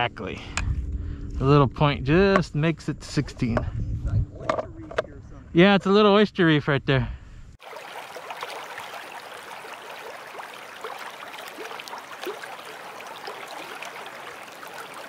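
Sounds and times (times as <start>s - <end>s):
water trickling and gurgling: 7.6s - 15.0s.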